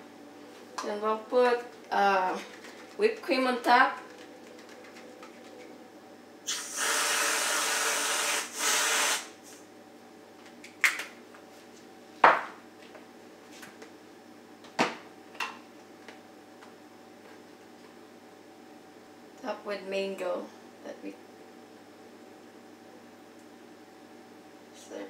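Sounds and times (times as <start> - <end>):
aerosol whipped cream spraying: 6.5 - 9.3.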